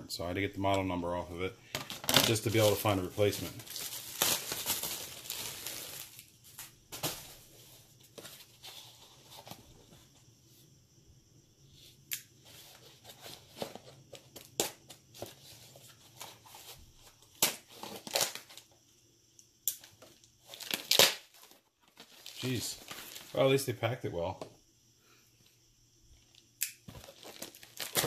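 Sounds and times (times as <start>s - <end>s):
plastic packaging crinkling: 1.8s - 7.5s, 19.8s - 23.5s, 26.3s - 28.0s.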